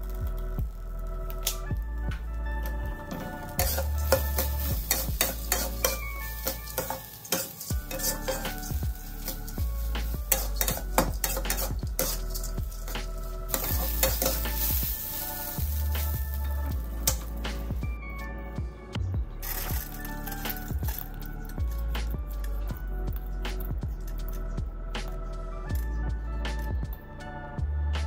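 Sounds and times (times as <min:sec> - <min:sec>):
rice sizzling: 0:00.0 - 0:18.3, 0:19.4 - 0:23.1
spatula scraping a wok: 0:03.5 - 0:17.8, 0:19.4 - 0:21.6.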